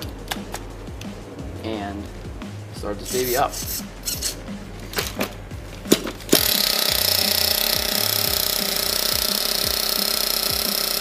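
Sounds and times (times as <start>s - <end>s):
pull starter: 5.9s - 11.0s
nitro engine running: 6.4s - 11.0s.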